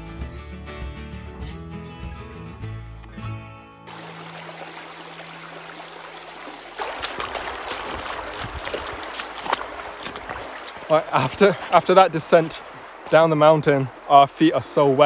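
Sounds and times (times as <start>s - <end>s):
music: 0.0s - 3.9s
boots splashing through water: 3.9s - 14.2s
shallow stream rushing: 3.9s - 15.0s.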